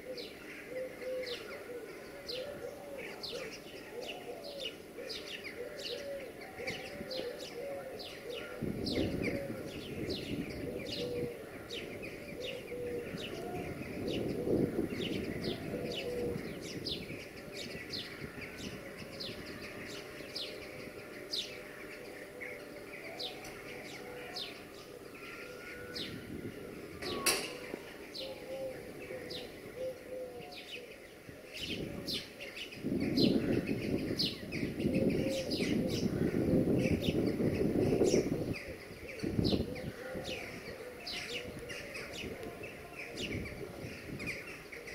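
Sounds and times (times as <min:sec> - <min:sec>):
pigeons cooing: 0:00.0 - 0:44.9
small birds chirping: 0:00.0 - 0:44.9.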